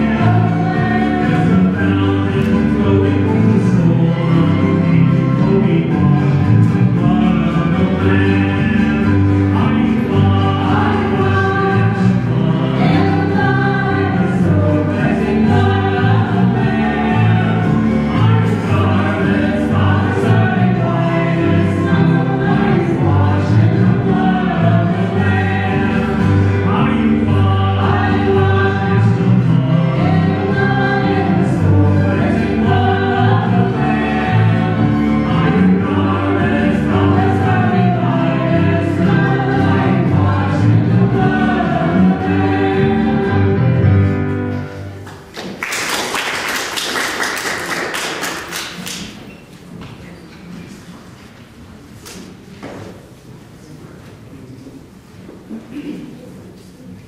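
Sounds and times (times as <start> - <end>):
people singing: 0.0 - 44.4
worship band playing: 0.0 - 49.2
audience applause: 45.0 - 49.3.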